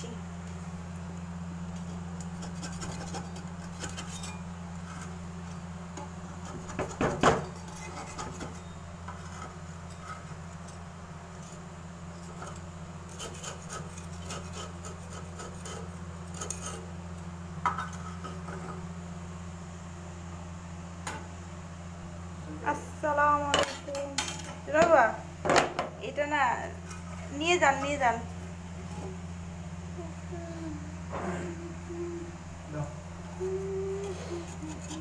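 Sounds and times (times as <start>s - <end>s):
steady low hum: 0.0s - 35.0s
metal utensil scraping clay pan: 2.2s - 5.2s, 6.3s - 10.8s, 12.1s - 16.9s, 34.4s - 35.0s.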